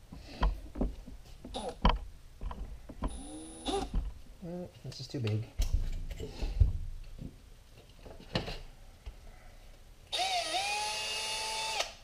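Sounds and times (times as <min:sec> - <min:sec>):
cordless drill motor whine: 0:10.1 - 0:12.0.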